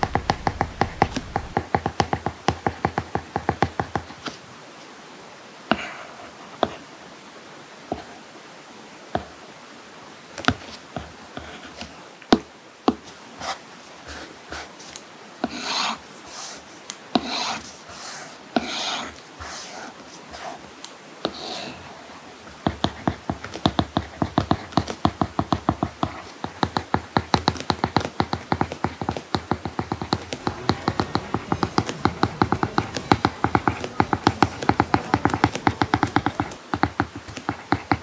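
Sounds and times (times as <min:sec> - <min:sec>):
stylus tapping and scratching on screen: 0:00.0 - 0:04.1, 0:22.5 - 0:38.0.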